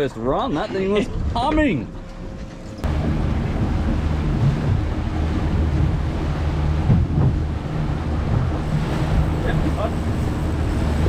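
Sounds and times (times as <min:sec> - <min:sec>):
boat motor running: 0:00.0 - 0:11.0
water rushing past hull: 0:00.6 - 0:11.0
wind on microphone: 0:02.8 - 0:11.0.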